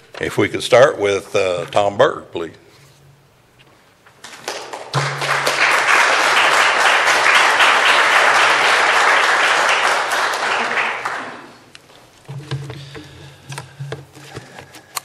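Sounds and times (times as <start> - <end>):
audience applauding: 4.3 - 11.6.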